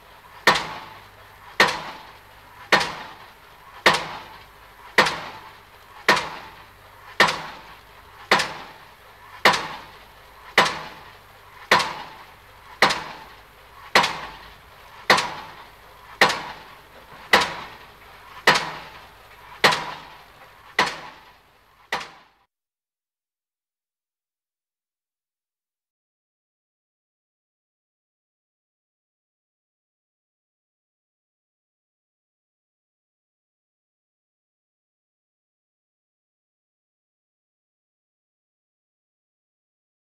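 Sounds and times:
sharp knocks: 2.7 - 3.2, 5.0 - 5.4, 6.1 - 6.5, 7.2 - 7.7, 8.3 - 8.7, 9.4 - 9.9, 10.6 - 11.0, 11.7 - 12.2, 12.8 - 13.3, 13.9 - 14.5, 15.1 - 15.6, 16.2 - 17.8, 18.5 - 19.0, 19.6 - 21.3, 21.9 - 22.3.

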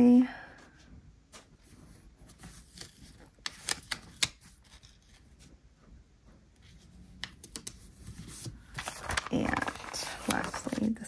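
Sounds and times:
paper stickers crinkling: 2.3 - 5.4, 7.2 - 11.0.

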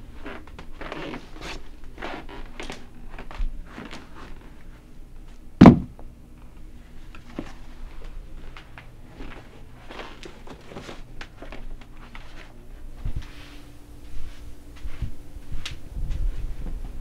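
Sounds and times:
heavy thumps: 5.6 - 6.0
low rumble: 12.6 - 17.0.

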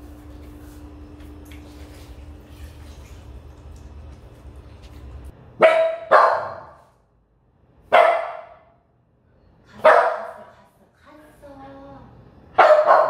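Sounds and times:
dog barking: 5.6 - 6.9, 7.9 - 8.8, 9.8 - 10.5, 12.6 - 13.0.

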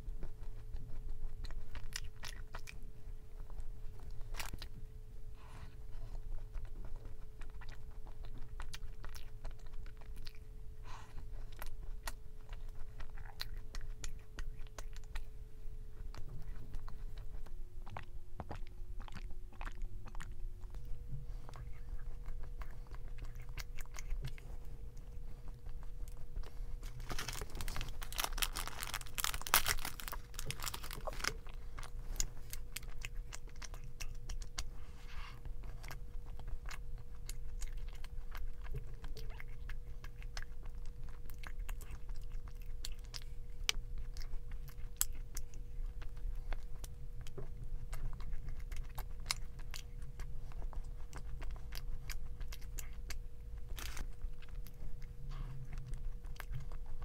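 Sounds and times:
chewing crunchy food: 0.0 - 57.0
faint steady hum: 0.0 - 57.0.

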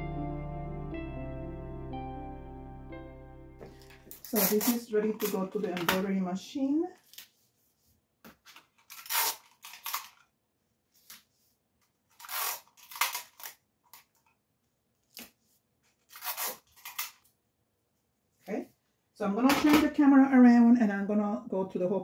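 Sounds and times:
paper handling: 3.7 - 6.2
sticky tape tearing: 3.8 - 5.4, 8.8 - 10.2, 12.2 - 14.1, 16.0 - 17.2.

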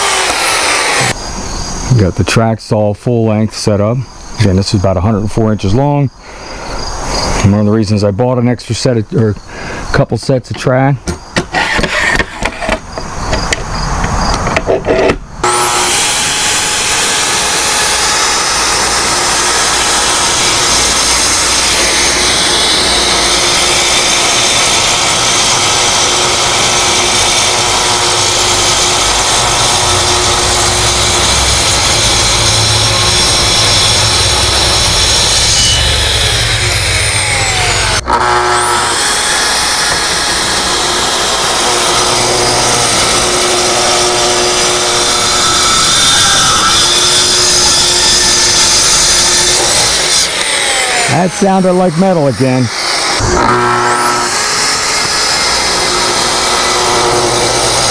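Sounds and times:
saw cutting wood: 0.0 - 1.8, 11.4 - 57.9
track saw motor whine: 0.0 - 1.9, 14.2 - 57.9.

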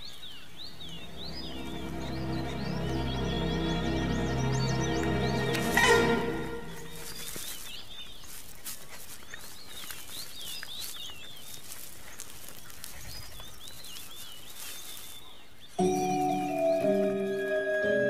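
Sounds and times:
faint rustle and hiss: 7.0 - 15.8.

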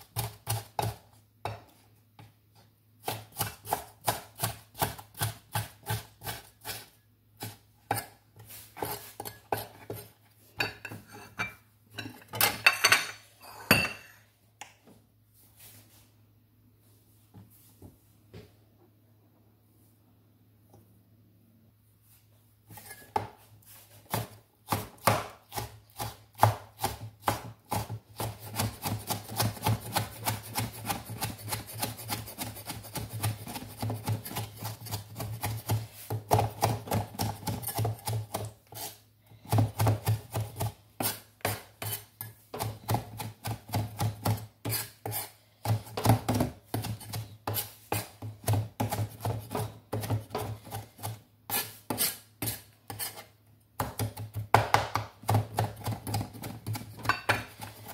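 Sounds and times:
knife chopping on wooden board: 24.1 - 38.5, 39.5 - 53.2, 53.8 - 57.9.

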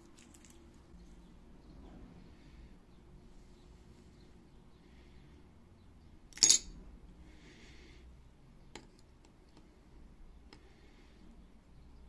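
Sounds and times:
metallic clink with short ring: 6.4 - 6.7.

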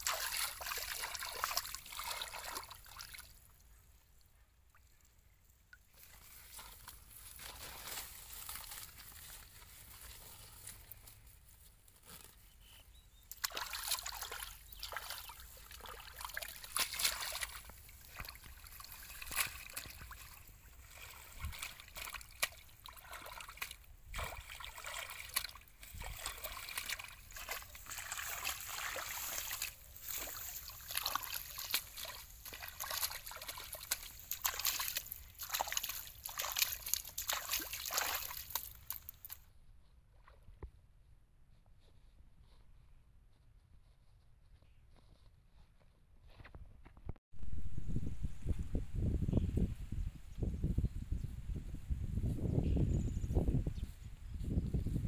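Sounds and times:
hands splashing in water: 0.0 - 3.3, 13.3 - 39.4
water trickling and dripping: 13.3 - 39.4.

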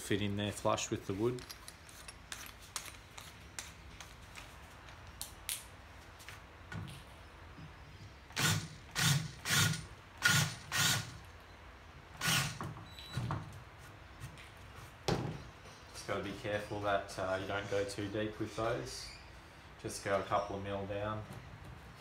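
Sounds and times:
cordless drill drilling into timber: 8.4 - 11.2, 12.2 - 12.6.

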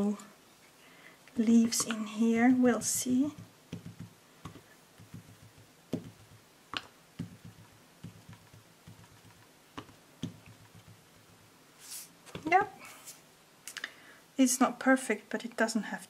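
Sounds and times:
ink dauber tapping on paper: 3.2 - 11.4.

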